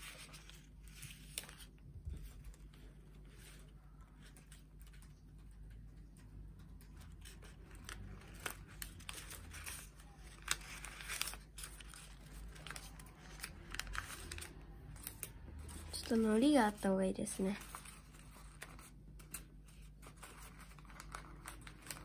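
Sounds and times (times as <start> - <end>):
paper rustling and crinkling: 0.0 - 22.0
short paper crackles: 17.5 - 22.0.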